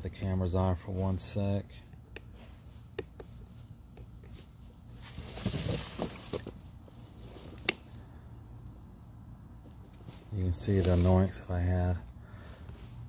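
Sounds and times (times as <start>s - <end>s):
rubber fin rustling and scraping: 2.3s - 8.0s, 9.6s - 11.4s.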